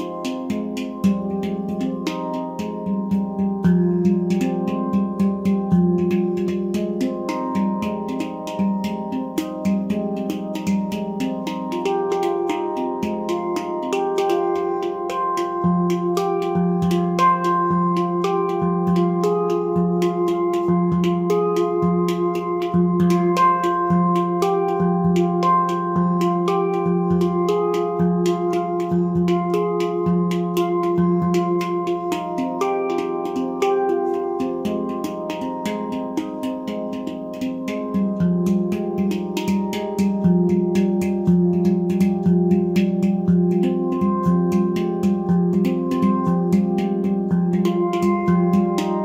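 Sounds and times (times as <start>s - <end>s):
handpan played by hand: 0.0s - 49.0s.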